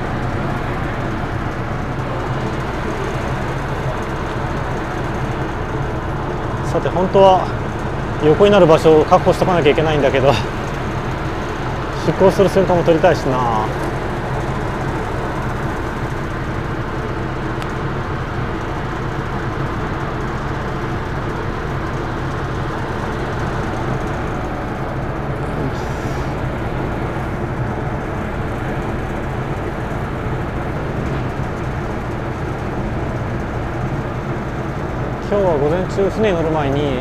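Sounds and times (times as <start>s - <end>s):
ship engines droning: 0.0s - 37.0s.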